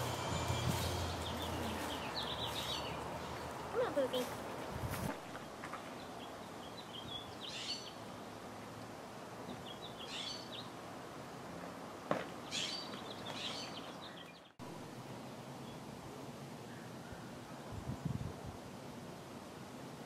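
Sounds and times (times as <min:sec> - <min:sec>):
small birds twittering: 0:00.0 - 0:04.4, 0:05.3 - 0:08.5, 0:09.5 - 0:10.8, 0:12.4 - 0:14.6
faint background noise: 0:00.0 - 0:20.0.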